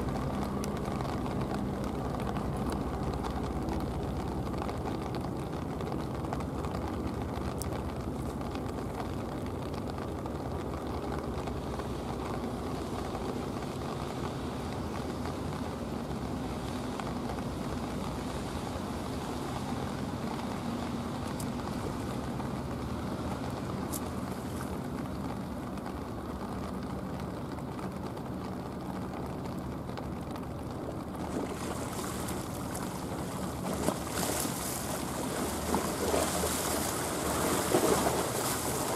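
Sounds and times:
boat engine drone: 0.0s - 38.9s
waves splashing against steps: 11.6s - 26.4s, 28.2s - 38.9s.

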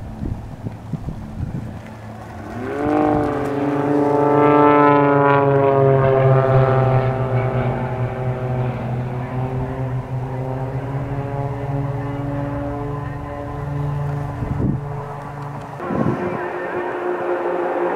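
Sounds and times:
propeller plane engine drone: 0.0s - 17.9s.

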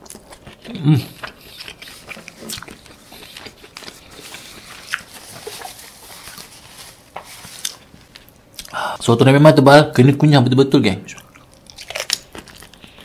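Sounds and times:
chewing with wet mouth clicks: 0.0s - 5.6s, 11.1s - 13.0s.

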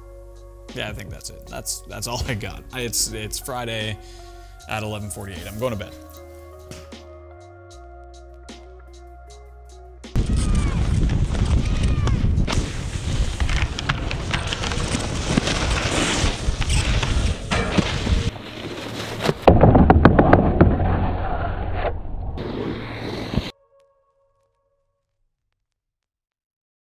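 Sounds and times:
wind rushing over microphone: 10.2s - 18.4s
board edges scraping on snow: 11.0s - 23.5s.

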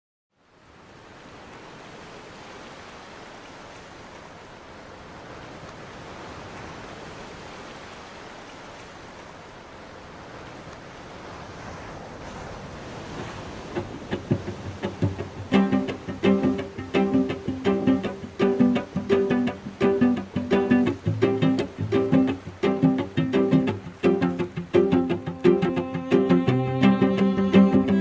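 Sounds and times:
ocean surf washing: 0.7s - 28.0s
cello plucked notes: 13.8s - 28.0s.

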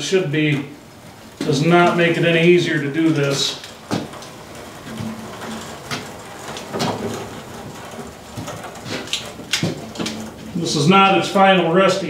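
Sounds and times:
pallet jack rolling on concrete: 0.8s - 12.0s
clunks and knocks: 3.1s - 10.6s.

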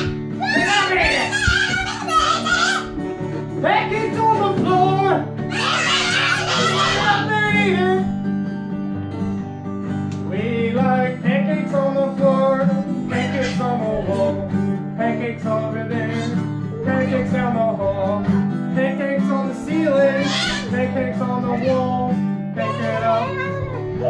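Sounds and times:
acoustic guitar strumming chords: 0.0s - 24.0s
person singing: 3.6s - 8.1s, 10.3s - 24.0s.

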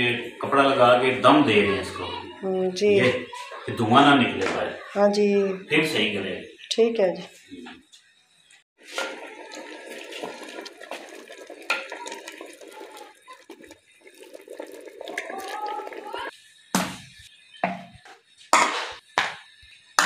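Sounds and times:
water running into a vessel: 8.8s - 16.3s.

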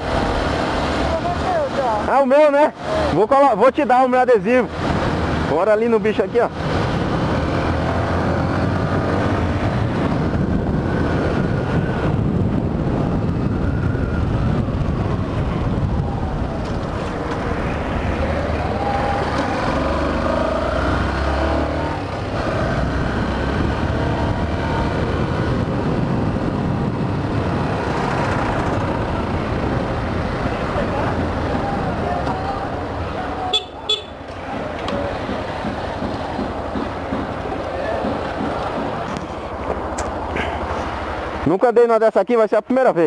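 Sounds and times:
wind rush on microphone: 6.5s - 33.6s.

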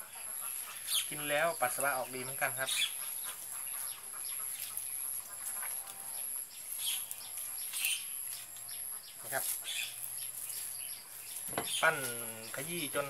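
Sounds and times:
birds chirping: 0.0s - 13.0s
hands kneading leaves in wet cloth: 6.6s - 13.0s.

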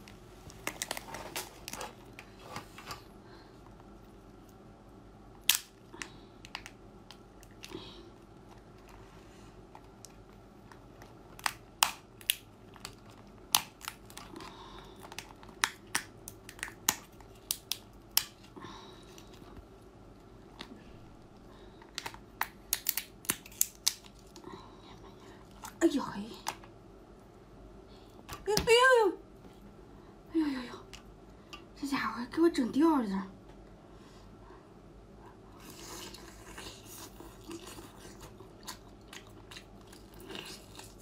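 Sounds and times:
lobster shell cracking: 5.4s - 7.8s, 9.7s - 18.5s, 21.8s - 24.4s.

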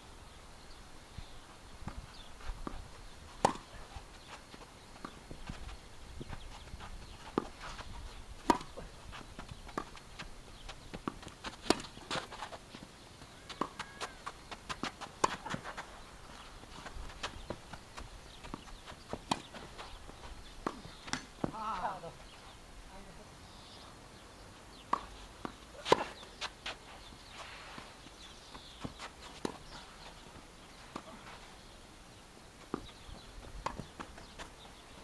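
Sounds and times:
footsteps on court: 1.8s - 22.0s, 24.9s - 31.5s
tennis ball struck and bouncing: 3.4s - 3.7s, 8.4s - 8.8s, 20.6s - 21.6s.

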